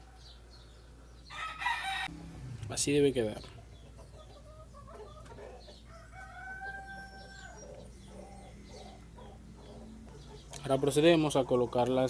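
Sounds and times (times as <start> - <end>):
rooster crowing: 1.3 - 2.4, 4.6 - 9.0.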